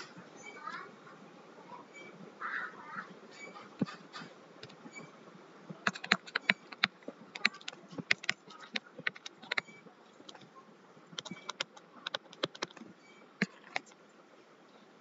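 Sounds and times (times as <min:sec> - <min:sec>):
stylus tapping on laptop screen: 0:05.8 - 0:10.4, 0:11.2 - 0:12.8.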